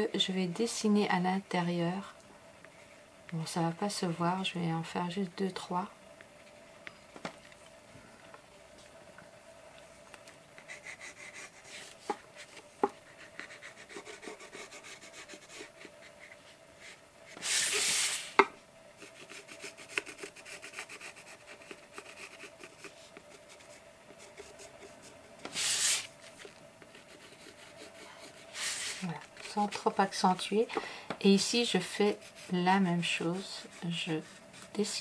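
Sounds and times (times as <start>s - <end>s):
pencil scratching on paper: 10.7s - 11.9s, 13.1s - 18.0s, 19.0s - 26.1s, 26.8s - 30.0s, 31.9s - 35.0s
paper sliding on table: 17.4s - 18.4s, 25.4s - 26.5s, 28.5s - 29.0s.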